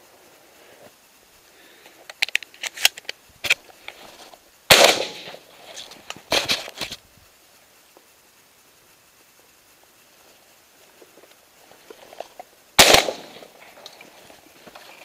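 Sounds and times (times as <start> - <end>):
gun clicks and leaf cracks: 1.8 - 7.0, 11.2 - 15.0
shotgun shot: 4.7 - 5.4, 12.8 - 13.5.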